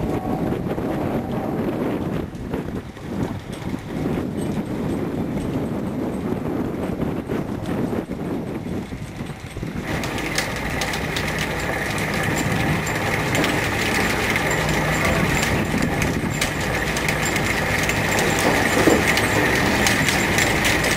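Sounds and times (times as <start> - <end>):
high machinery whine: 0.0 - 2.9, 9.8 - 20.9
boat engine hum: 0.0 - 5.4, 8.5 - 20.9.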